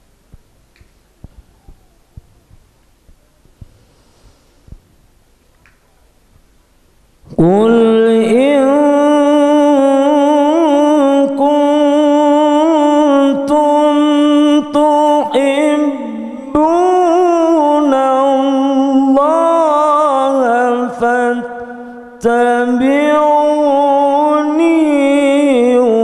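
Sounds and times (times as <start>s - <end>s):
man chanting into a microphone: 7.3s - 26.0s.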